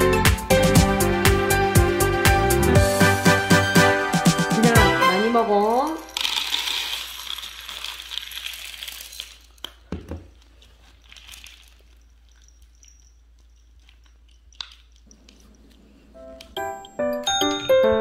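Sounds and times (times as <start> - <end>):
cat crunching food: 6.1 - 12.0
sharp clinks: 11.5 - 15.3.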